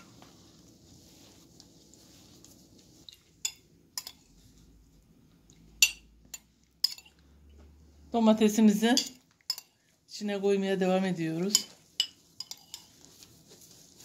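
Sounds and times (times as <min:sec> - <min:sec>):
paste kneaded in steel bowl: 0:00.0 - 0:07.2, 0:08.1 - 0:14.0
metal spoon clinking on bowl: 0:03.4 - 0:04.3, 0:05.8 - 0:07.2, 0:08.9 - 0:09.8, 0:11.5 - 0:13.0.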